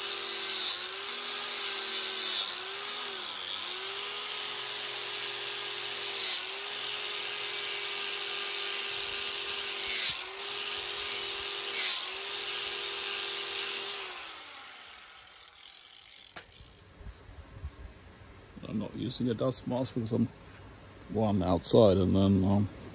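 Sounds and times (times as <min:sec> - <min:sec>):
angle grinder grinding metal: 0:00.0 - 0:16.8
grinder winding down: 0:00.0 - 0:16.8.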